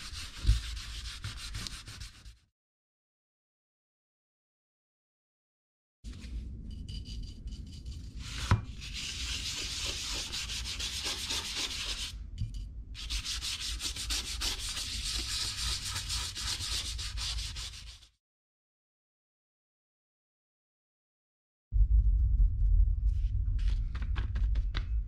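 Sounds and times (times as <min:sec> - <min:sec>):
toothbrush scrubbing paper: 0:00.0 - 0:02.4, 0:08.2 - 0:12.1, 0:13.0 - 0:18.1.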